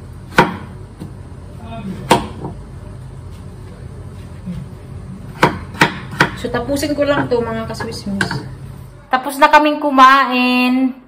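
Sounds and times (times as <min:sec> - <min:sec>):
knife striking cutting board: 0:05.4 - 0:06.4.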